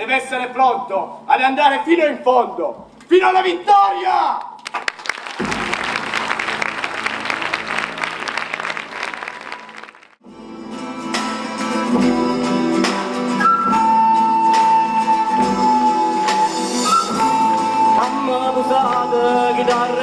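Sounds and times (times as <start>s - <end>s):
audience applause: 4.6s - 10.2s.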